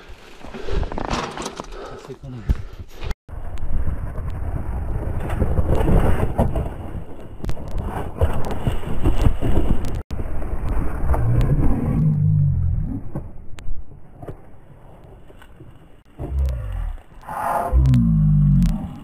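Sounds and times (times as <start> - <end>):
bike rattling over stones: 0.0 - 2.0.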